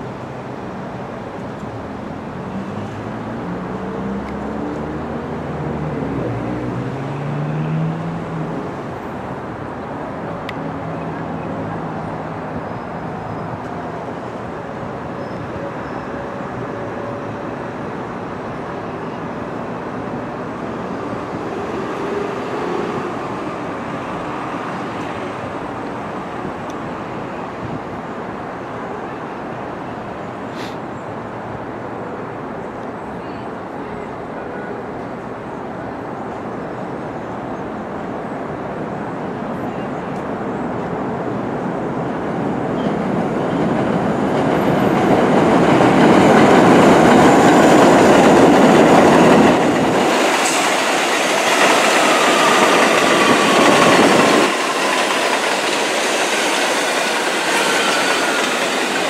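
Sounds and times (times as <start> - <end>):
subway train wheels rumbling: 0.0 - 59.0.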